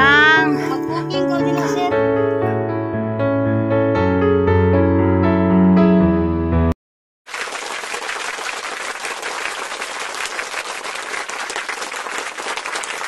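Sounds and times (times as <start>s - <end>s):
piano tune: 0.0s - 6.8s
crowd applause: 7.3s - 13.0s.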